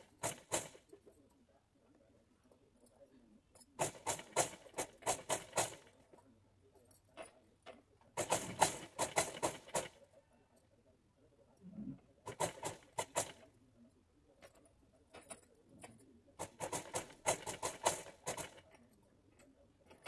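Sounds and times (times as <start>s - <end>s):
sewing machine stitching: 0.0s - 0.8s, 8.2s - 10.0s, 12.3s - 13.5s, 16.4s - 18.7s.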